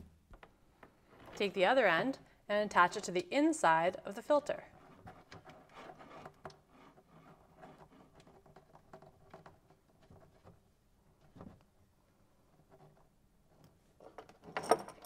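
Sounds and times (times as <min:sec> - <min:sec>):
metal nut threading clicks and scrapes: 0:04.7 - 0:10.6, 0:12.4 - 0:15.0.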